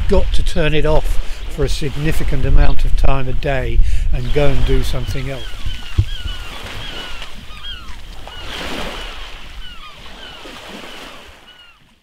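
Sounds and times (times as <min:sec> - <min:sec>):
sea washing onto shore: 0:00.0 - 0:11.7
birds chirping: 0:03.5 - 0:11.9.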